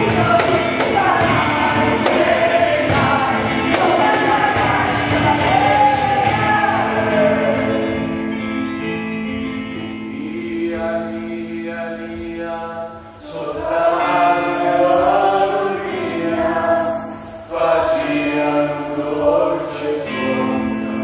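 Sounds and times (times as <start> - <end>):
person chanting: 9.8 - 21.0.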